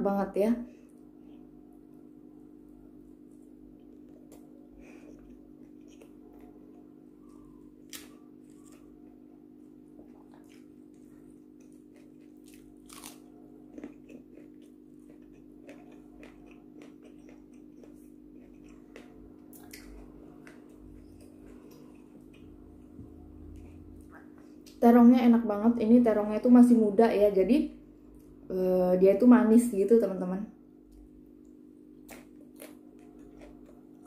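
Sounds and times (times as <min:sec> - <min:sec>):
steady low hum: 0:00.0 - 0:34.0
chewing with crunches: 0:03.3 - 0:24.8, 0:32.0 - 0:34.0.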